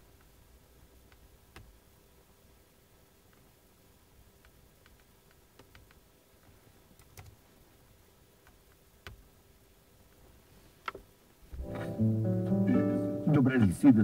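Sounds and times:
faint clicks: 4.4s - 7.4s.

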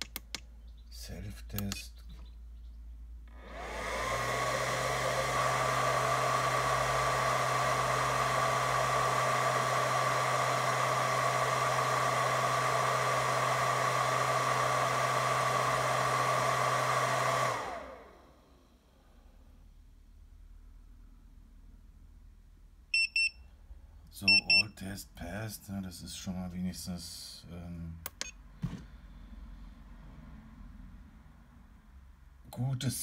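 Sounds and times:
cooling fan whirring: 3.3s - 18.5s.

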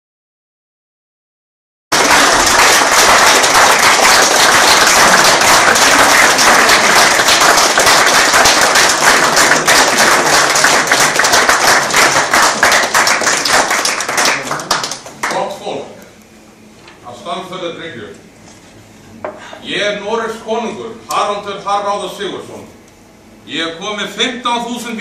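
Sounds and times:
audience applauding: 1.9s - 15.5s.

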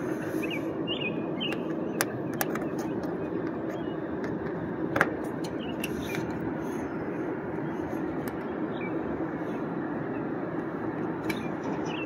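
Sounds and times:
bird chirps: 0.4s - 4.0s, 8.4s - 9.0s, 11.3s - 12.0s.

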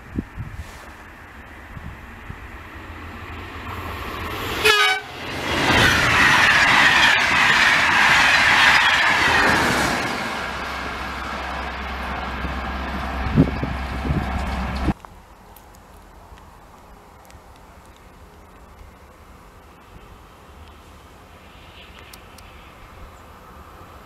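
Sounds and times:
train rushing past: 1.2s - 15.0s
train horn blast: 4.6s - 5.2s.

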